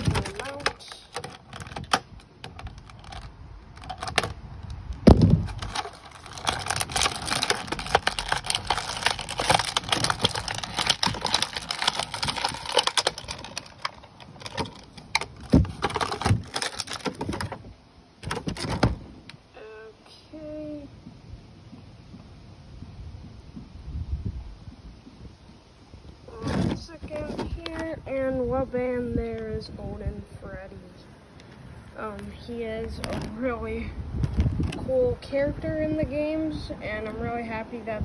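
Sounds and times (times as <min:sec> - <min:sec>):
plastic packaging crinkling: 0:00.0 - 0:19.1.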